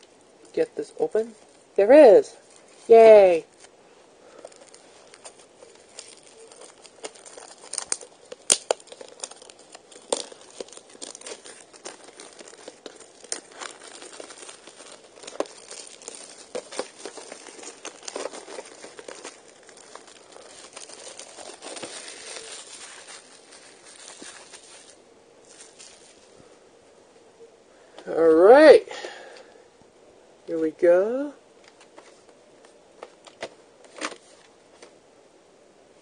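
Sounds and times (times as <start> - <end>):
plastic shrink-wrap tearing: 4.3 - 26.3.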